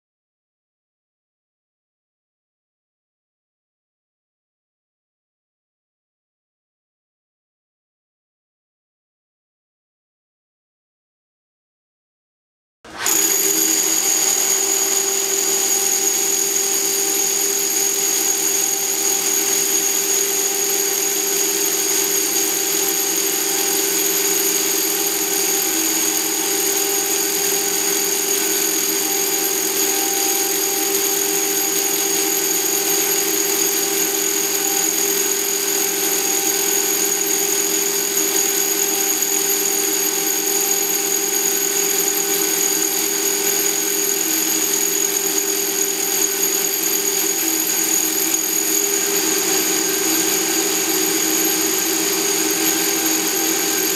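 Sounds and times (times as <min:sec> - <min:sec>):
rotary hammers drilling stone: 0:12.9 - 0:53.9.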